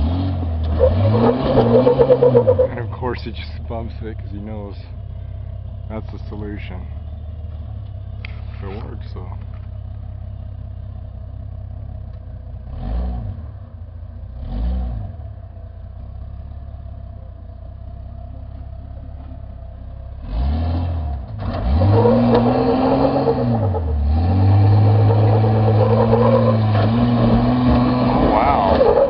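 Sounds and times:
car engine revving: 0:00.0 - 0:06.8, 0:20.1 - 0:29.0.

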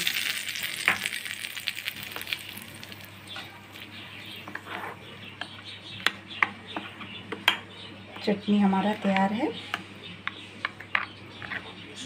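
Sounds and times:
hot oil sizzling: 0:00.0 - 0:04.0.

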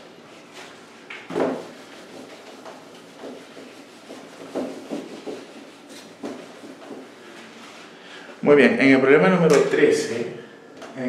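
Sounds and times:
whiteboard being wiped: 0:00.0 - 0:08.3.

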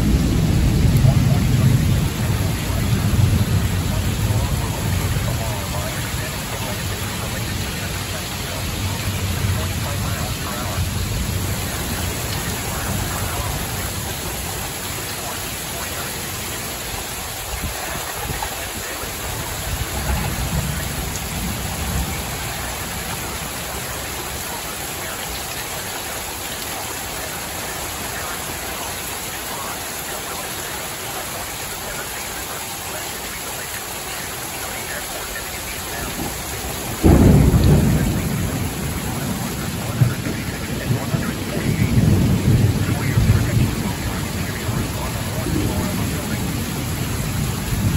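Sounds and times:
loud thunderclap: 0:00.0 - 0:07.9, 0:36.1 - 0:47.9
thunder rumbling: 0:00.0 - 0:26.0, 0:34.8 - 0:47.9
heavy rain pouring: 0:00.0 - 0:47.9.

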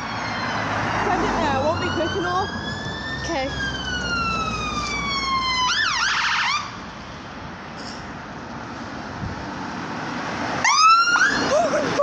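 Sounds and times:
ambulance siren wailing and yelping: 0:00.0 - 0:06.8, 0:10.6 - 0:12.0
traffic noise: 0:00.0 - 0:12.0.

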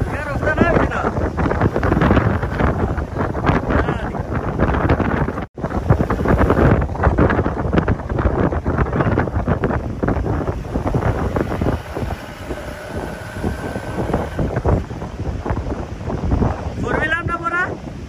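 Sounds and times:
vehicle engine driving on sand: 0:00.0 - 0:16.7
wind buffeting microphone: 0:00.0 - 0:18.0.

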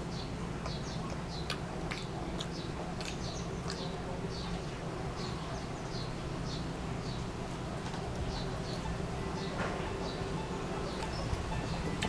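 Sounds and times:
steady low hum: 0:00.0 - 0:12.0
chewing mouth clicks: 0:00.6 - 0:04.0.

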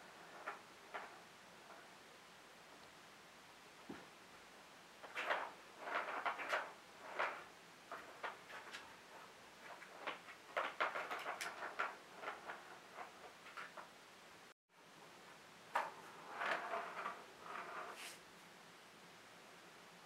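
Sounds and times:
plastic ball rattling in track: 0:00.2 - 0:01.8, 0:05.0 - 0:13.9, 0:15.7 - 0:18.0.

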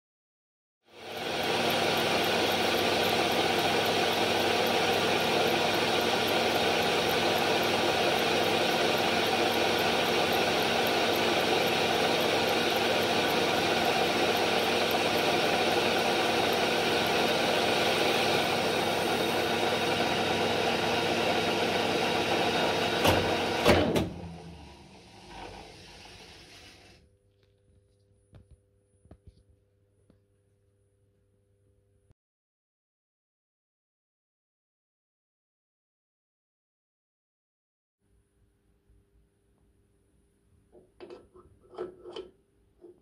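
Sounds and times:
lathe machining: 0:01.0 - 0:27.0.

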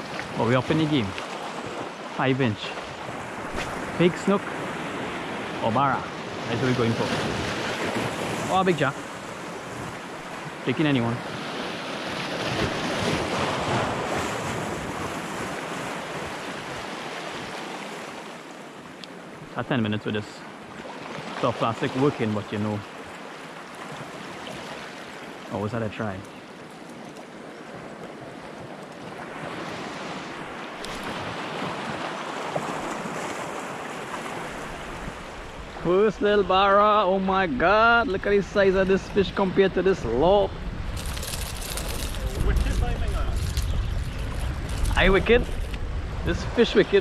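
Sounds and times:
waves splashing over rocks: 0:00.0 - 0:47.0
waves washing against rocks: 0:29.1 - 0:47.0
wind on microphone: 0:33.9 - 0:47.0.

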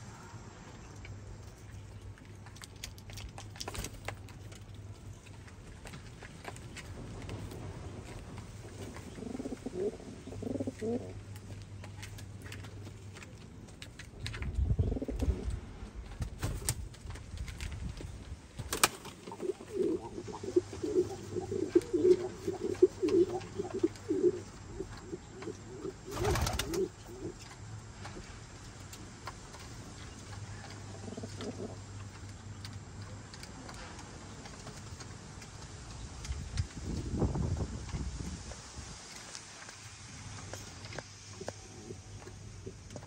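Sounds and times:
pigeons cooing: 0:08.8 - 0:11.2, 0:14.7 - 0:15.5, 0:19.1 - 0:27.5, 0:30.5 - 0:31.9.

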